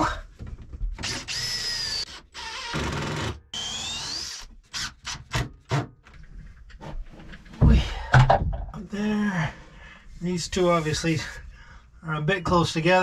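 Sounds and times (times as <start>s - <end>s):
cordless drill driving screws: 1.0s - 5.5s.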